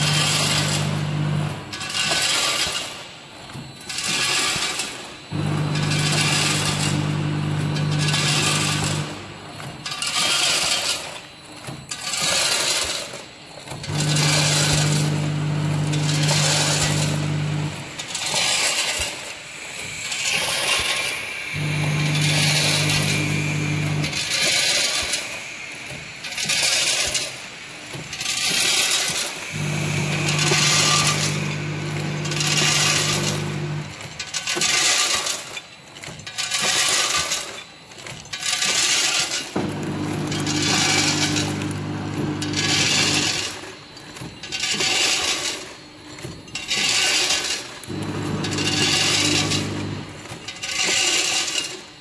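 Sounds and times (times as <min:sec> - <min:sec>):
low machine hum: 0:00.0 - 0:01.8, 0:13.8 - 0:18.0, 0:21.5 - 0:24.4, 0:29.5 - 0:34.1, 0:39.6 - 0:43.4, 0:47.9 - 0:50.4
packing machine running: 0:00.0 - 0:52.0.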